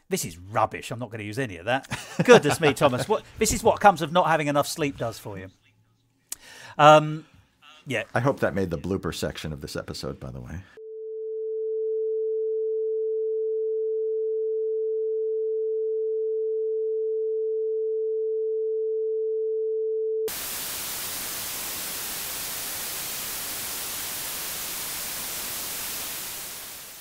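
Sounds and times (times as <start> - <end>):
electronic sine tone: 10.8 - 27.0
white noise hiss: 20.3 - 27.0.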